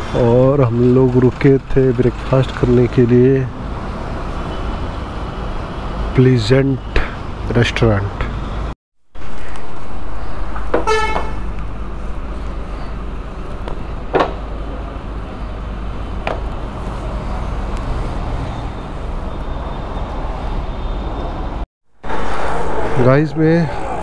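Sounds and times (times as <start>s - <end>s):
road traffic rumble: 0.0s - 24.0s
vehicle horn honking: 10.8s - 11.6s.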